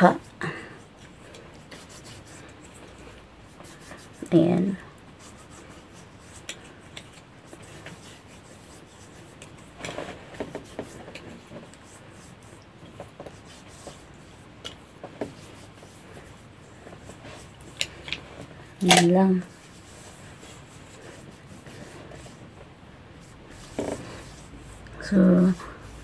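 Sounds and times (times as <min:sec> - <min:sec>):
hands rubbing skin: 0:00.1 - 0:26.0
light taps and rustles: 0:09.4 - 0:19.1.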